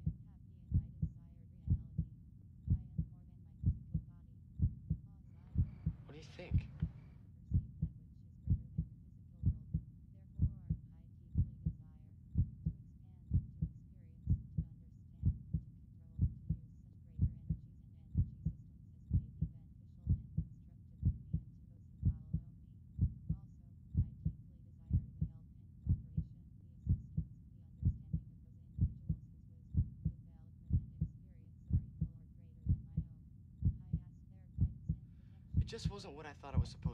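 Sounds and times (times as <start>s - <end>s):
heartbeat lub-dub: 0.0s - 2.1s, 2.7s - 11.8s, 12.4s - 16.6s, 17.2s - 17.6s, 18.2s - 22.4s, 23.0s - 23.4s, 24.0s - 25.3s, 25.9s - 26.3s, 26.9s - 28.2s, 28.8s - 29.2s, 29.8s - 31.1s, 31.7s - 32.1s, 32.7s - 34.0s, 34.6s - 35.0s, 35.6s - 36.0s.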